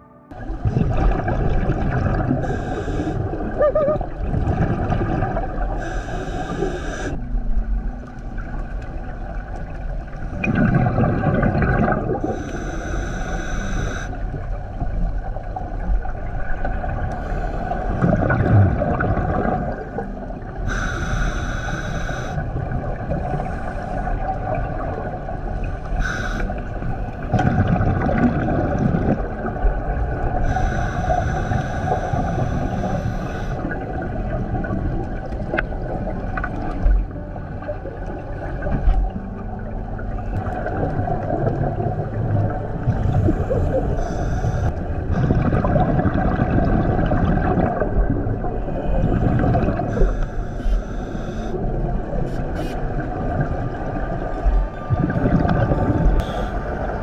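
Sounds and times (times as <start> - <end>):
exhaled bubbles rumbling: 0.3 - 12.6, 14.1 - 20.8, 22.3 - 57.0
regulator inhalation hiss: 2.4 - 3.3, 5.8 - 7.2, 12.2 - 14.2, 20.7 - 22.4, 25.9 - 26.6, 30.4 - 33.8, 43.2 - 44.7, 49.9 - 51.6, 56.2 - 56.7.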